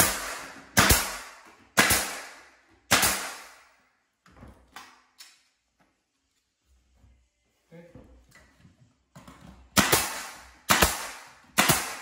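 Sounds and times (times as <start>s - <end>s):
pneumatic nail gun firing: 0.0s - 3.6s, 9.8s - 12.0s.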